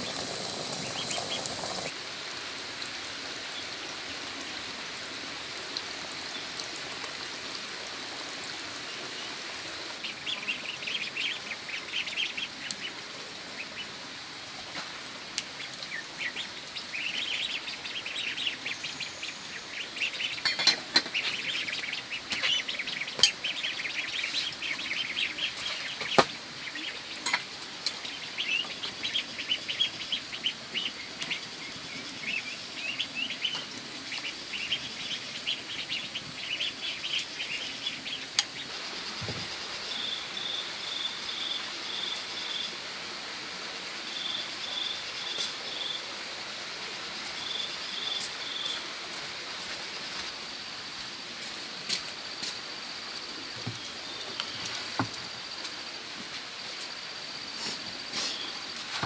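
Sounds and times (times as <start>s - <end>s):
birds chirping and chattering: 0.0s - 1.9s, 15.6s - 40.5s.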